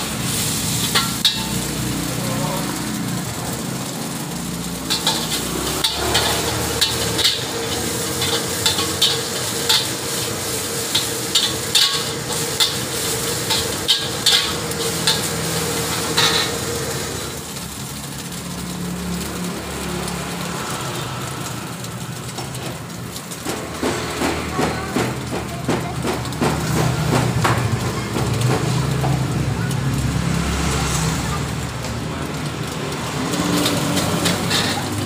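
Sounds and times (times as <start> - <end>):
food sizzling: 0.0 - 35.0
metal spatula scraping a wok: 0.2 - 2.0, 4.8 - 17.2, 33.4 - 35.0.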